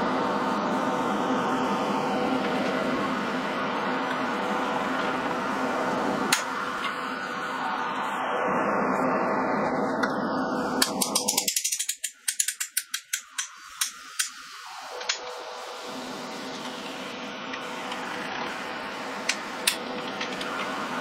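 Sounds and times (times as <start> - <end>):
ratcheting mechanical clicks: 10.8 - 14.4.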